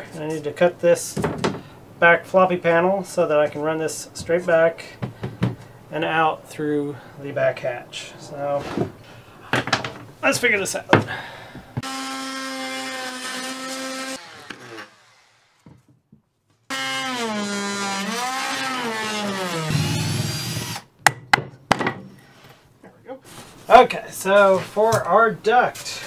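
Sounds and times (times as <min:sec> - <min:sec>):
wood knocks and clatters: 0:08.7 - 0:10.1, 0:21.1 - 0:22.1
power saw cutting wood: 0:11.8 - 0:15.6, 0:16.7 - 0:20.9.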